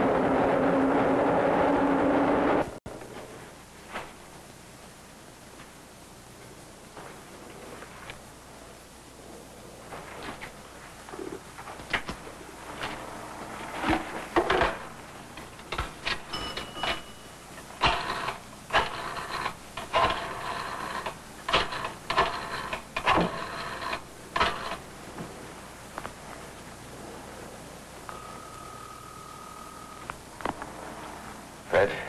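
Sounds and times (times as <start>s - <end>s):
rotary dial whirring clicks: 17.7s - 24.8s.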